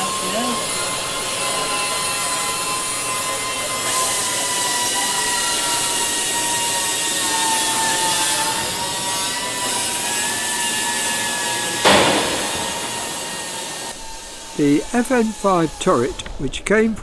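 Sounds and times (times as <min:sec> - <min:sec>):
power drill drilling into metal: 0:00.0 - 0:16.0.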